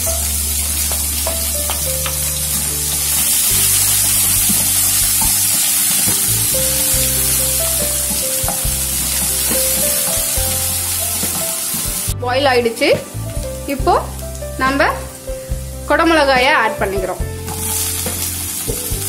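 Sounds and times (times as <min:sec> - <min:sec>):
background music of held notes: 0:00.0 - 0:19.0
onions sizzling in oil: 0:00.0 - 0:19.0
wooden spatula scraping pan: 0:17.4 - 0:18.5.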